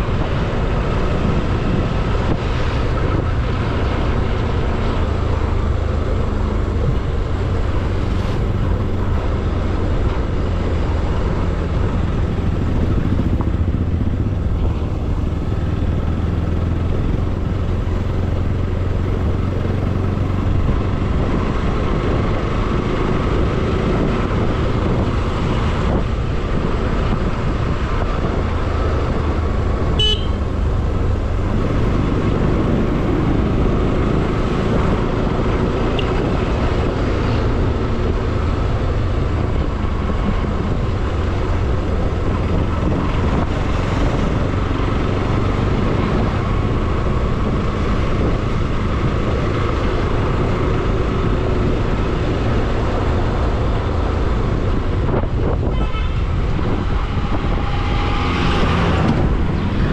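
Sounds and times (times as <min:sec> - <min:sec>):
motorcycle engine running: 0:00.0 - 0:59.9
road noise: 0:00.0 - 0:59.9
short high horn beep: 0:30.0 - 0:30.4.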